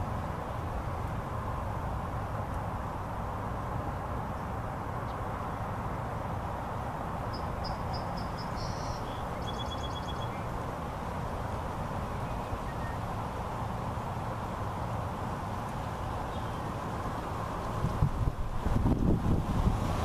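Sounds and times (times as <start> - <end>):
outdoor background rumble: 0.0 - 20.0
bird chirping and trilling: 7.3 - 10.4.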